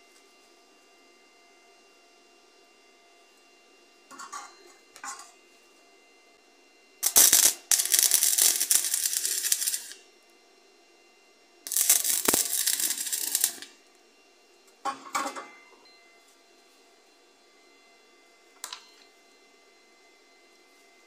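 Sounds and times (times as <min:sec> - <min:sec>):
welding arc crackling: 0:07.0 - 0:10.0, 0:11.7 - 0:13.8.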